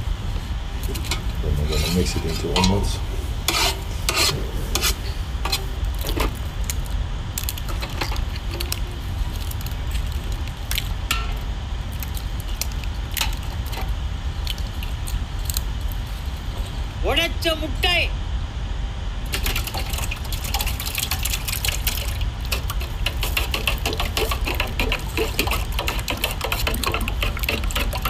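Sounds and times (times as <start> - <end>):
steady low rumble: 0.0 - 28.0
eggs cracking against bowl: 5.5 - 16.0, 19.3 - 28.0.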